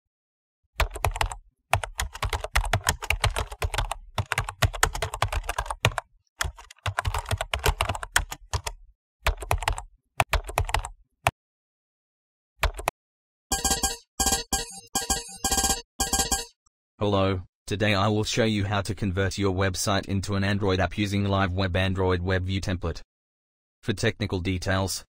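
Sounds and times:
typing on computer keyboard: 0:00.8 - 0:10.9, 0:12.6 - 0:12.9.

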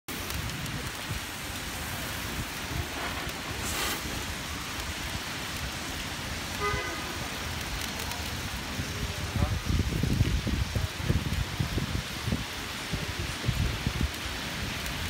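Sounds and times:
fireworks hissing: 0:00.1 - 0:15.0
traffic rumble: 0:00.1 - 0:15.0
wind: 0:00.1 - 0:15.0
horn toot: 0:06.6 - 0:07.2.

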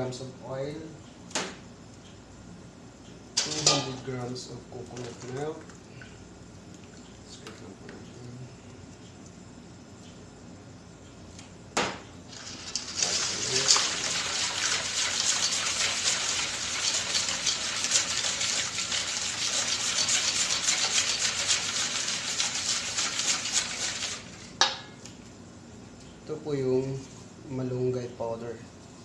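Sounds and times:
whisk beating liquid in steel bowl: 0:12.4 - 0:24.4.

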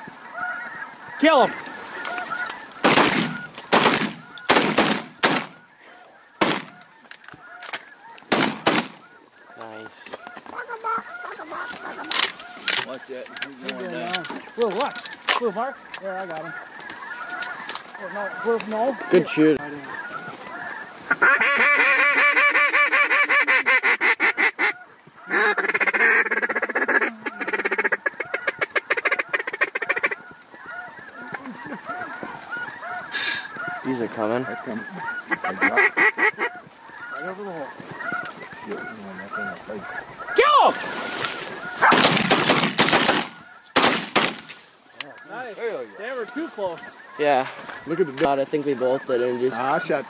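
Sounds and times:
ducks honking and quacking: 0:00.0 - 0:50.0
shotgun shots: 0:02.8 - 0:05.6, 0:06.4 - 0:06.8, 0:08.3 - 0:09.0, 0:41.8 - 0:44.6.

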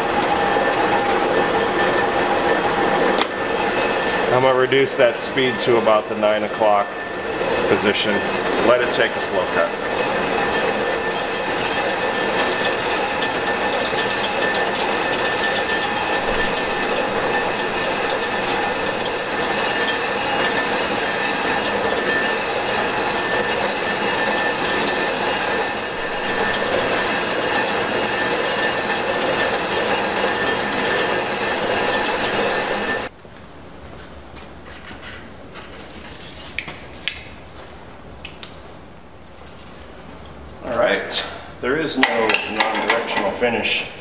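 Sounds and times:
lathe motor running: 0:00.0 - 0:33.1
metallic ringing of lathe cutting: 0:00.0 - 0:33.1.

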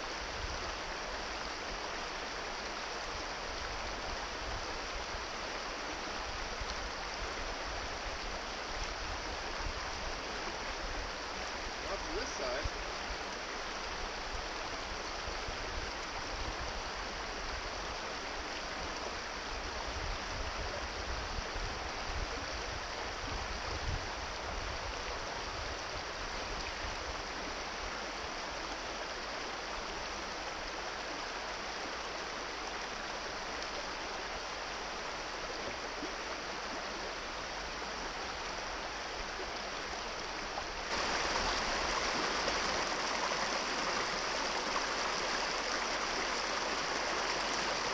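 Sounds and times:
brook rushing over stones: 0:40.9 - 0:47.9.

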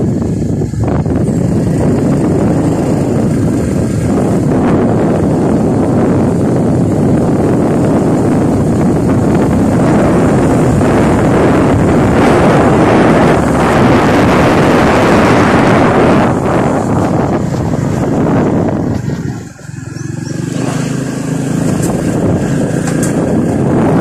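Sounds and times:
motorcycle engine: 0:00.0 - 0:24.0
road noise: 0:00.0 - 0:24.0
wind rushing on microphone: 0:00.0 - 0:24.0.

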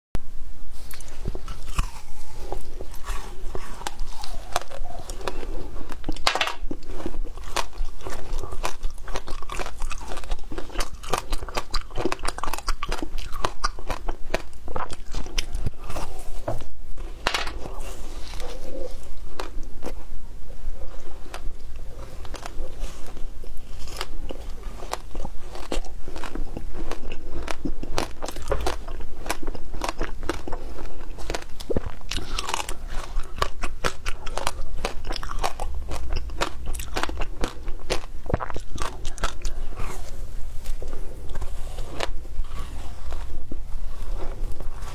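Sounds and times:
crunching frozen ice: 0:21.3 - 0:40.2.

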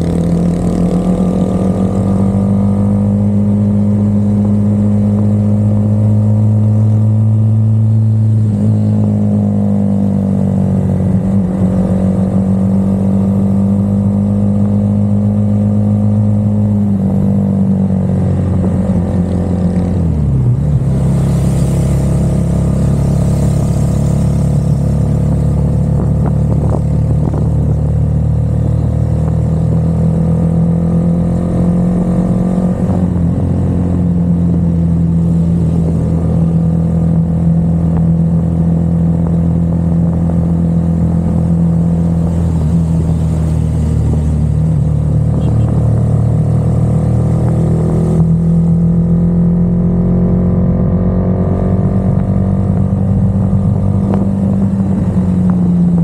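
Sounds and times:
car engine running: 0:15.7 - 0:50.3, 0:51.4 - 0:56.0.

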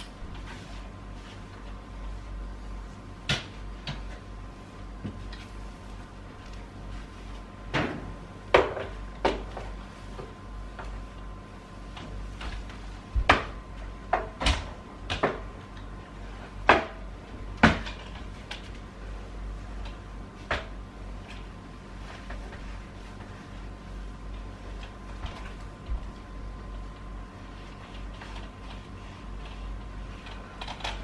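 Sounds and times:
mop knocking on floor and furniture: 0:05.0 - 0:05.5, 0:07.7 - 0:11.0, 0:12.0 - 0:15.5.

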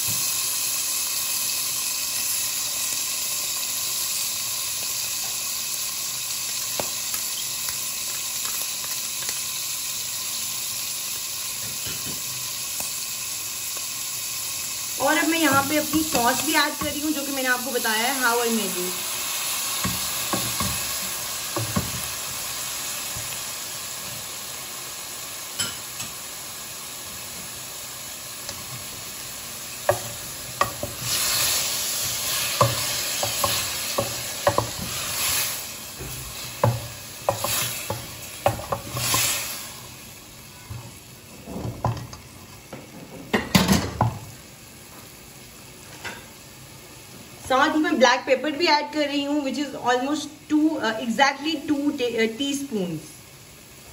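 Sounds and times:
food sizzling in a hot pan: 0:00.0 - 0:53.9
wooden spatula scraping a pan: 0:29.9 - 0:39.7.

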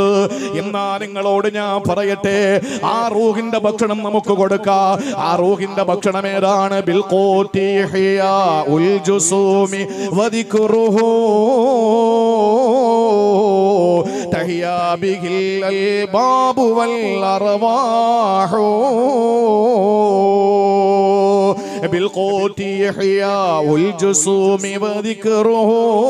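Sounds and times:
breaths between phrases: 0:00.2 - 0:00.7, 0:02.5 - 0:03.0, 0:04.9 - 0:05.3, 0:09.8 - 0:10.2, 0:14.0 - 0:14.4, 0:21.5 - 0:21.9.

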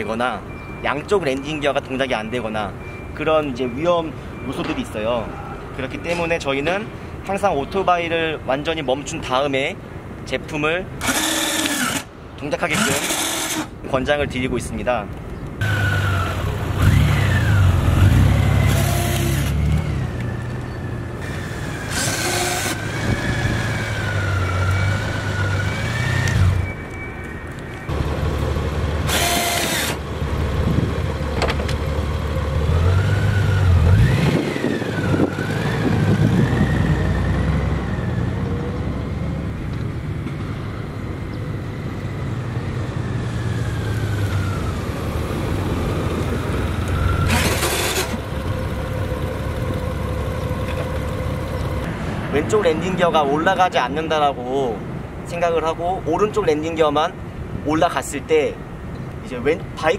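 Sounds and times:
motorcycle engine running: 0:48.1 - 0:51.8.

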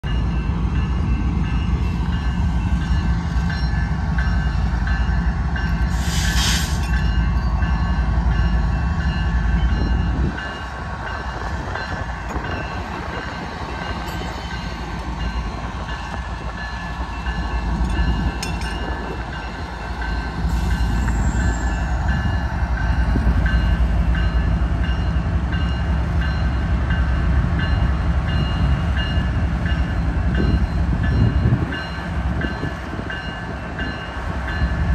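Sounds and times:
locomotive engine rumbling: 0:00.0 - 0:34.9
brief hiss: 0:05.9 - 0:07.0.

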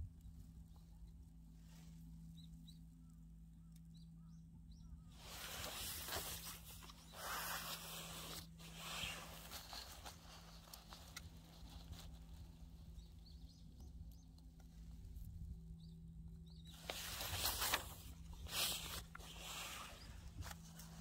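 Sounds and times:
steady low hum: 0:00.0 - 0:21.0
rustling in dry grass: 0:05.1 - 0:21.0.

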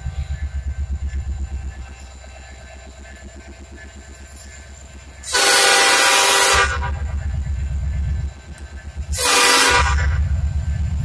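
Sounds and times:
diesel engine throbbing: 0:00.0 - 0:11.0
locomotive horn blasts: 0:05.2 - 0:07.0, 0:09.1 - 0:10.2.

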